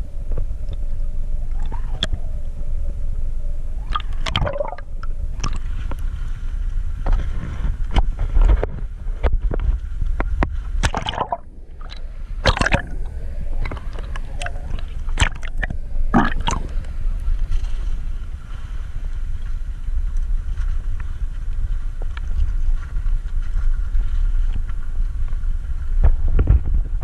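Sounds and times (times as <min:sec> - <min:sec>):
low underwater rumble: 0:00.0 - 0:27.0
water rushing and gurgling: 0:03.8 - 0:05.9, 0:10.8 - 0:18.9
camera breaking water surface: 0:03.9 - 0:04.8, 0:10.8 - 0:16.8.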